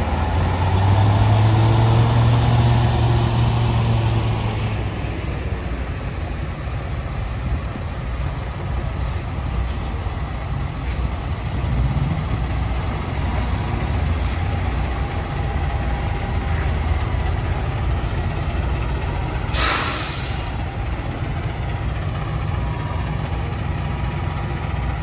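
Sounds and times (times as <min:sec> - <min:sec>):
truck diesel engine rumbling: 0:00.0 - 0:25.0
air brake hiss: 0:09.0 - 0:09.4, 0:10.8 - 0:11.1, 0:19.5 - 0:20.6.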